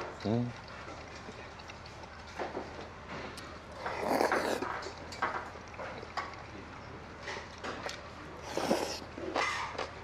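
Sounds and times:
chewing: 0.0s - 10.0s
person slurping: 3.8s - 4.7s, 8.4s - 9.1s.

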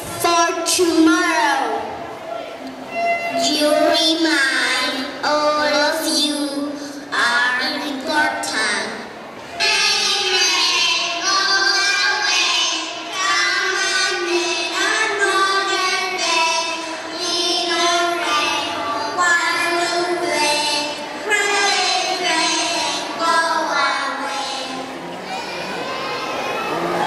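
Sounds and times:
children singing: 9.5s - 27.0s.

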